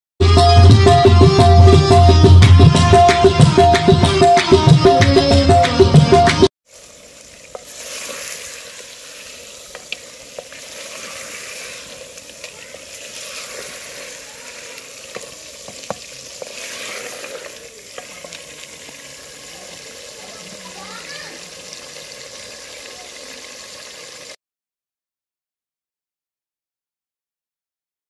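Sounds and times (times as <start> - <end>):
meat frying hiss: 6.6 - 24.4.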